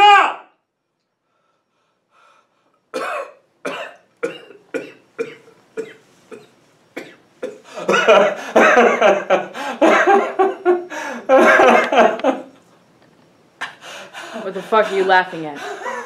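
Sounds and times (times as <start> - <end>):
man coughing: 3.0 - 10.4, 11.4 - 12.1
man laughing loudly: 7.8 - 12.6, 15.6 - 16.0.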